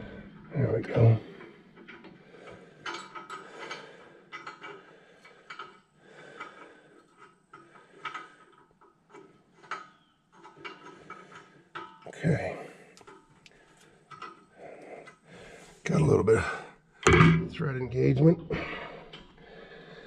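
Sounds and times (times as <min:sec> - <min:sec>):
metallic clicks and scrapes of bolts: 0:01.4 - 0:12.1.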